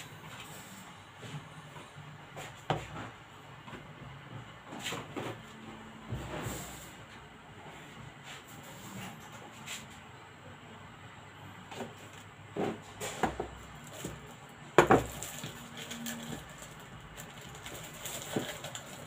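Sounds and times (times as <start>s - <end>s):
plastic bag crinkling: 13.8s - 19.0s.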